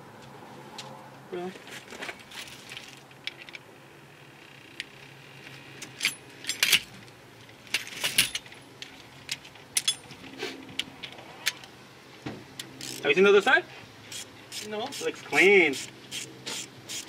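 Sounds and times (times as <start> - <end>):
metal tools clinking: 5.8 - 6.9, 7.7 - 8.6, 9.3 - 10.3
ratchet wrench: 12.8 - 13.0, 14.1 - 15.1, 15.7 - 17.0.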